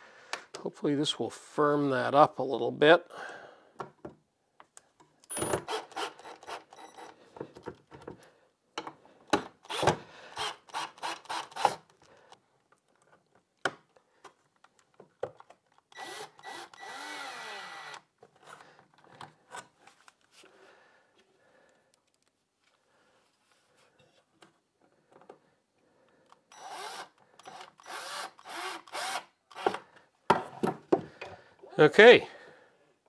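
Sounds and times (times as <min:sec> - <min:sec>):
cordless drill driving screws: 0:05.3 - 0:07.2, 0:09.4 - 0:11.9, 0:15.9 - 0:18.1, 0:26.5 - 0:29.8.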